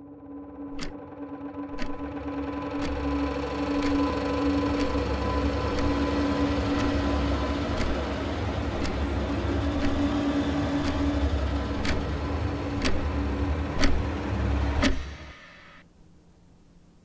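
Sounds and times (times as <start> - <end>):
low dark drone: 0.0 - 15.8
wall clock ticking: 0.8 - 1.0, 1.8 - 14.1.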